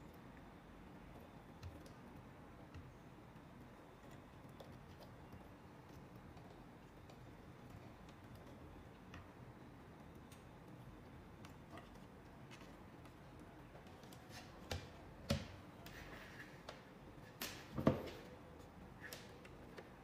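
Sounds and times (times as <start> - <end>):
faint clicks and rustles of hands: 0.1 - 15.1.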